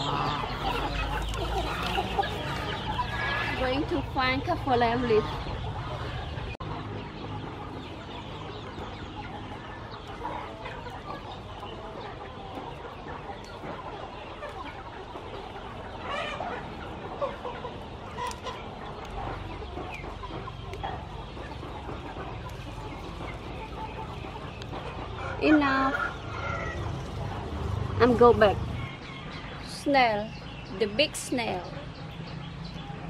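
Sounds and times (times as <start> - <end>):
chickens clucking: 0.0 - 33.0.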